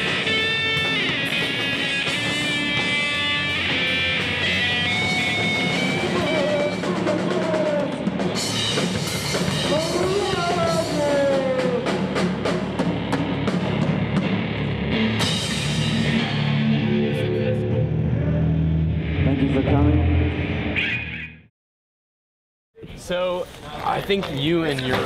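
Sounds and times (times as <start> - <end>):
sliding guitar notes: 0.0 - 7.6
metal band playing: 0.0 - 20.7.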